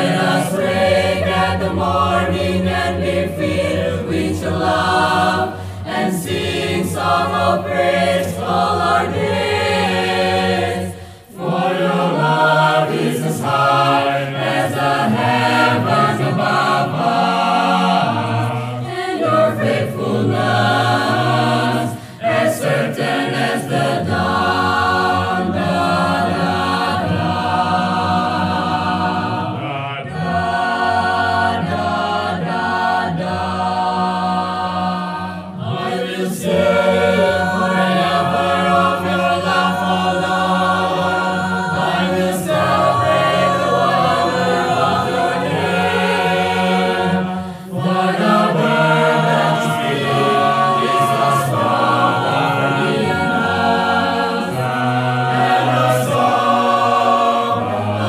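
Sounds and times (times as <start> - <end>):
mixed choir singing in harmony: 0.0 - 58.0.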